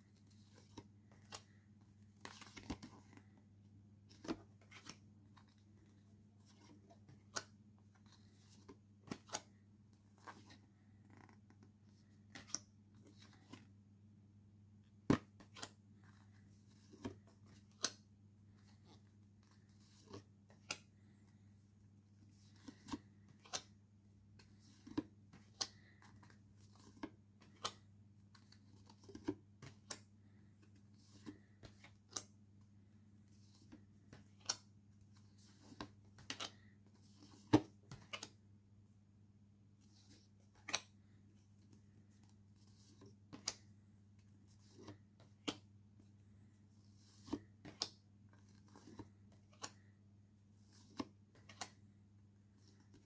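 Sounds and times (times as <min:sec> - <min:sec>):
postcards shuffled: 0:22.2 - 0:23.8, 0:24.4 - 0:32.3, 0:46.8 - 0:49.9.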